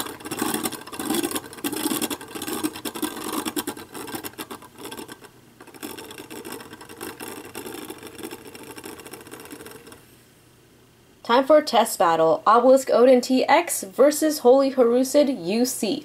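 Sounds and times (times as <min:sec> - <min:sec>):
spinning top scratchy whir: 0:00.0 - 0:10.1.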